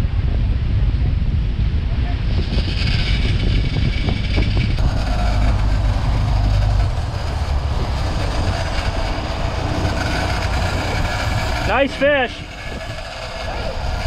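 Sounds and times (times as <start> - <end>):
boat engine drone: 2.5 - 14.0.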